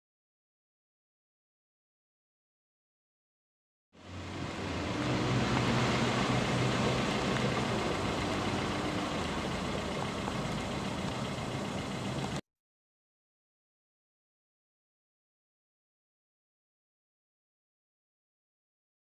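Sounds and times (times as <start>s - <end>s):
engine rumbling: 4.0s - 12.4s.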